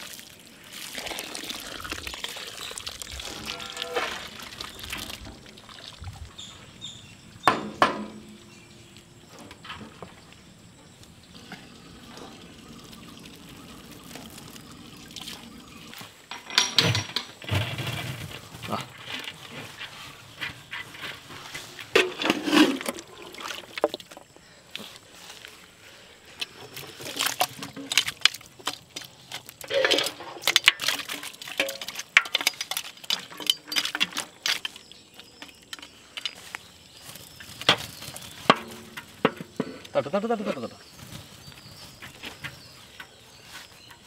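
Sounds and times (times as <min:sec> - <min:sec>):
water pouring and trickling: 0:00.0 - 0:07.4, 0:08.4 - 0:16.5, 0:20.8 - 0:24.3, 0:26.4 - 0:40.0.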